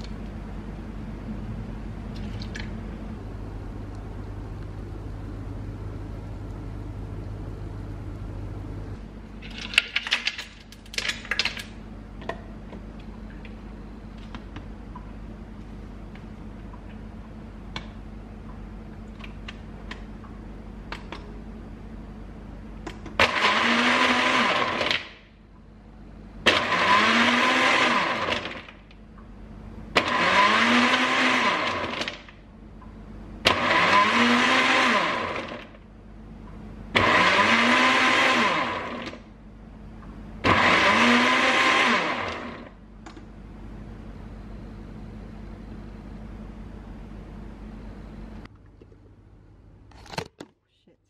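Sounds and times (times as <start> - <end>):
blender motor pulsing: 23.2 - 25.0, 26.5 - 28.5, 30.0 - 32.1, 33.5 - 35.7, 37.0 - 39.2, 40.4 - 42.7.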